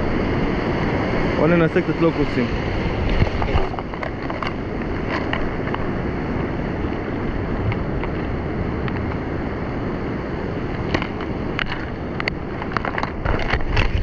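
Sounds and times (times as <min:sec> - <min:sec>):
surf washing over rocks: 0:00.0 - 0:14.0
wind on microphone: 0:00.0 - 0:14.0
lures clicking in tackle box: 0:03.1 - 0:05.9, 0:10.9 - 0:14.0.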